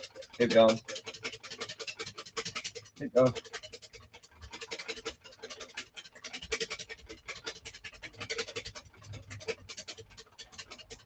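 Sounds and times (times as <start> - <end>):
whisk beating in metal bowl: 0.0 - 11.0.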